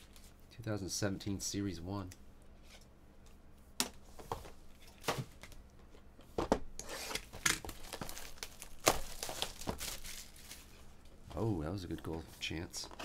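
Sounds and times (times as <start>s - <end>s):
plastic wrapping crinkling and tearing: 7.1s - 10.8s.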